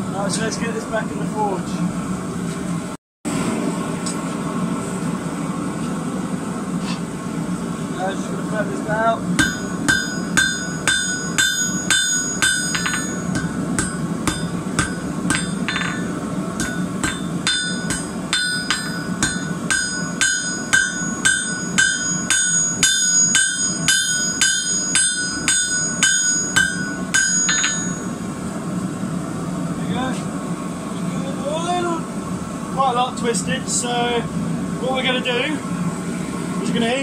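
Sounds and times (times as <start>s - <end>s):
hammer striking steel on anvil: 9.4s - 28.2s.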